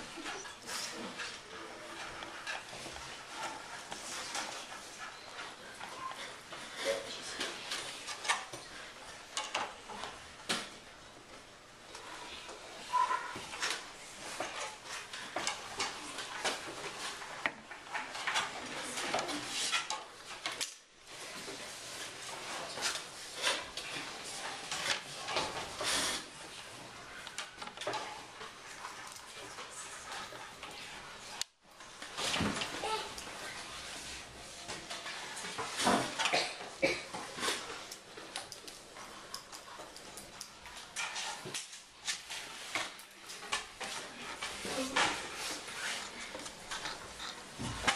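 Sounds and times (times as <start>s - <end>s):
pencils and desks clicking: 0.0s - 47.9s
small objects clattering on desks: 26.7s - 47.9s
children's voices: 32.7s - 33.4s.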